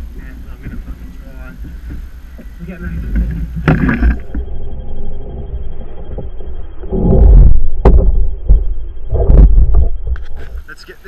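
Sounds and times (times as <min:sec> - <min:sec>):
sharp knock: 0:07.8 - 0:08.6.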